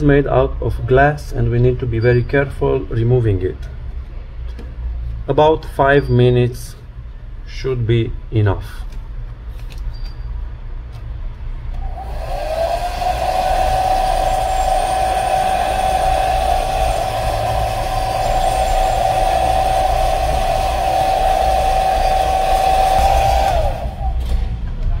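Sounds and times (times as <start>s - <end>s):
hair dryer motor whine: 11.8s - 24.5s
rush of blowing air: 11.8s - 24.7s.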